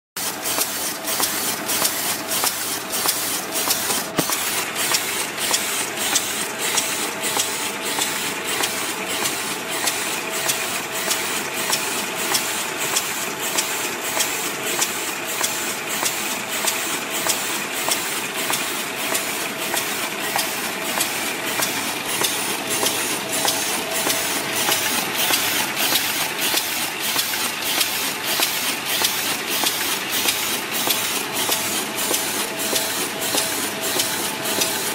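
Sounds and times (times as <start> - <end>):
paper bag machine clattering: 0.2 - 14.0, 16.8 - 34.9
sharp regular machine clack: 0.2 - 34.9
machine hum: 19.0 - 27.1.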